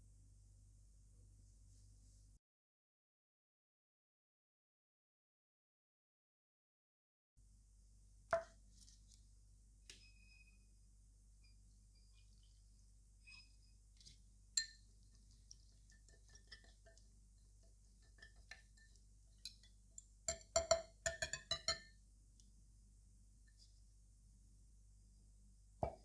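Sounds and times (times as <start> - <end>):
metal utensils clinking on glass bowl: 14.6 - 14.9, 15.9 - 17.0, 18.0 - 21.9.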